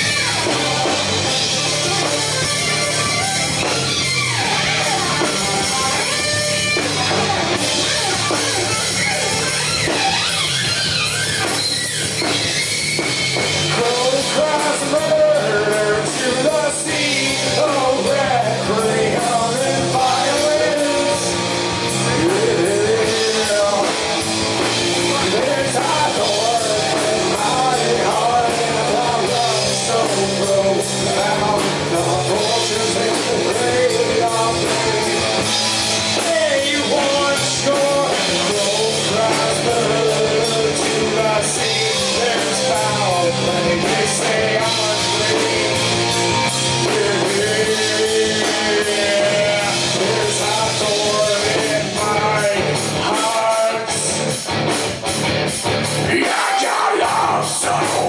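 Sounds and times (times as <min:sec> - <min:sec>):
bass guitar: 0:00.0 - 0:58.0
drums: 0:00.0 - 0:58.0
electric guitar: 0:00.0 - 0:58.0
man singing into a microphone: 0:13.7 - 0:54.2, 0:56.1 - 0:58.0.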